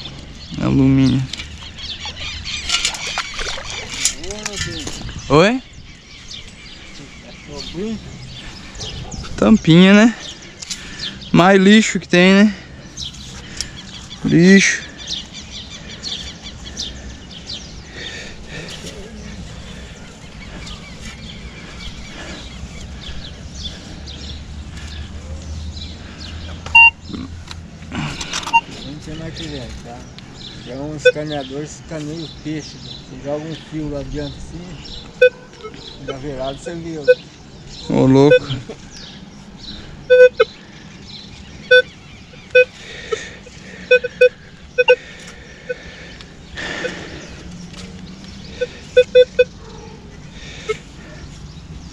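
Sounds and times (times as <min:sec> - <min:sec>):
birds chirping: 0:00.0 - 0:51.9
metal detector beep: 0:26.7 - 0:27.0, 0:28.5 - 0:28.7, 0:37.0 - 0:37.3, 0:38.3 - 0:38.6, 0:40.1 - 0:40.5, 0:41.7 - 0:42.8, 0:43.9 - 0:45.0, 0:49.0 - 0:49.5.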